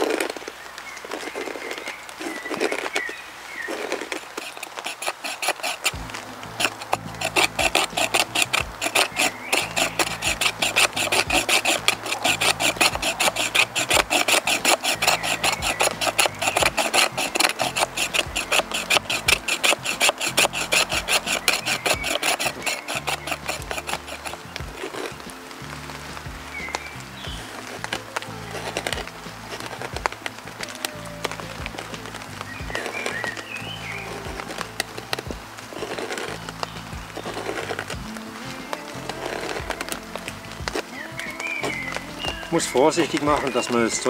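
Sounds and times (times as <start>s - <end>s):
knife scraping wood: 3.7s - 44.0s.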